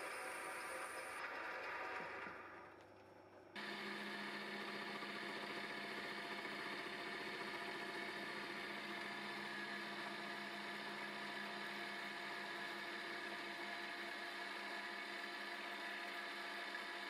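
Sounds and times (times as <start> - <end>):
milling machine humming: 3.6 - 17.0.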